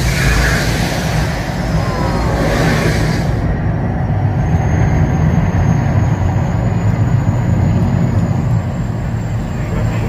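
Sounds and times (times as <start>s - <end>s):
gas flame hiss: 0.0s - 3.5s
deep loud rumble: 0.0s - 10.0s.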